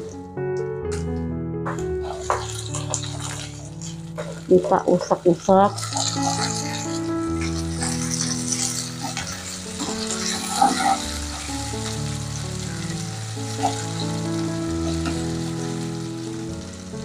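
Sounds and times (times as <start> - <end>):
soft background music: 0.0 - 17.0
spatula stirring: 1.7 - 15.8
food sizzling in hot oil: 1.7 - 17.0.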